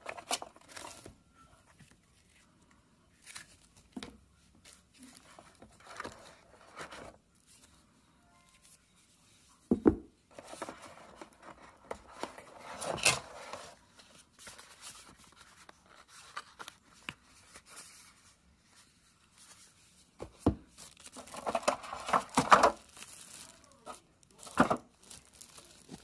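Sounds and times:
paper crinkling: 0.0s - 7.8s, 10.3s - 26.0s.

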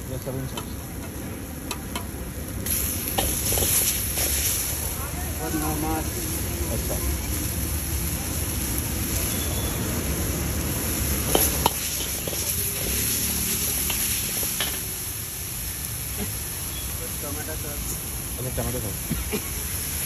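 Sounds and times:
vegetables sizzling in a wok: 0.0s - 20.0s
ladle clinking against wok: 11.2s - 13.0s.

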